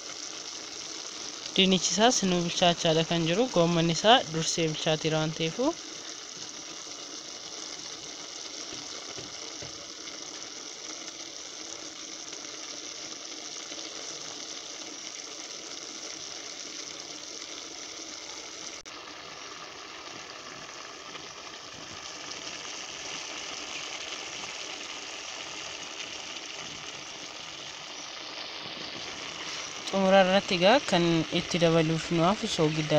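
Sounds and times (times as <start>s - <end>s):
pot simmering: 0.0s - 32.9s.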